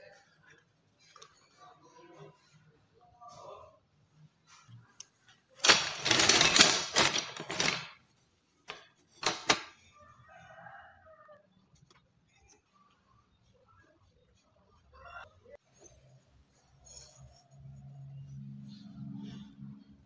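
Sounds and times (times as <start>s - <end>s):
wooden strips clattering on stone: 5.6s - 8.0s, 8.7s - 9.8s.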